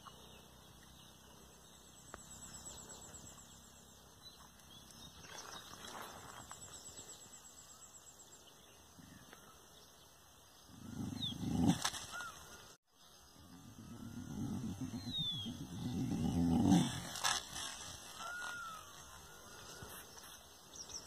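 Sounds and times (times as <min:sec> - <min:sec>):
birds chirping faintly: 0:00.0 - 0:21.0
dog growling low: 0:10.7 - 0:12.3, 0:13.4 - 0:17.6.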